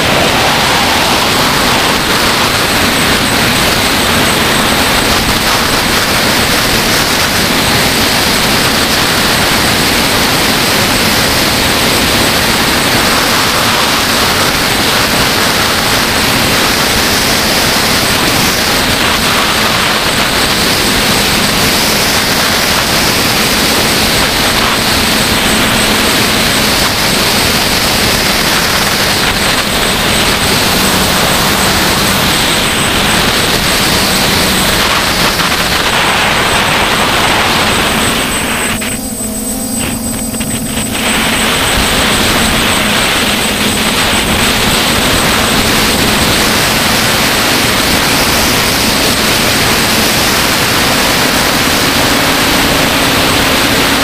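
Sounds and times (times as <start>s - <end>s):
drone motors droning hum: 0.0s - 54.0s.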